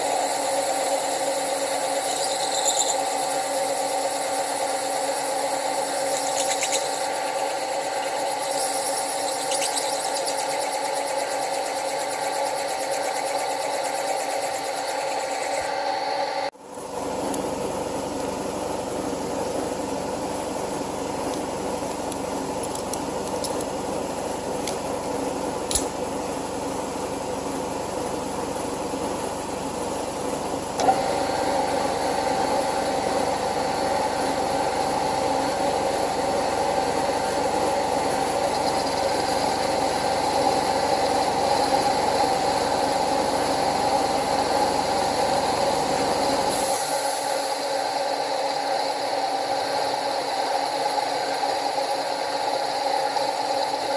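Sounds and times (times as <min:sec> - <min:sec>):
cutter ringing tone: 0:00.0 - 0:15.7
metal-working machine running: 0:00.0 - 0:16.5, 0:17.6 - 0:53.9
sharp click: 0:25.7 - 0:25.9.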